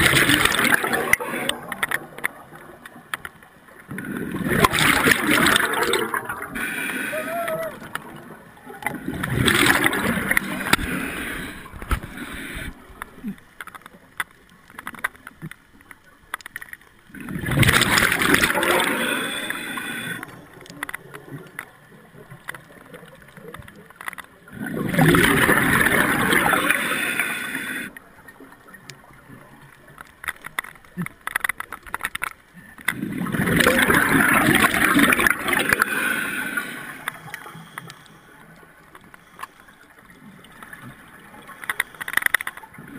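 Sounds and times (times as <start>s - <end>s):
exhaled bubbles underwater: 0.0s - 3.1s, 3.8s - 13.4s, 17.1s - 23.2s, 24.5s - 29.6s, 32.9s - 37.4s
small clicks: 0.0s - 6.4s, 11.7s - 18.6s, 19.4s - 24.5s, 27.9s - 33.0s, 36.5s - 42.8s.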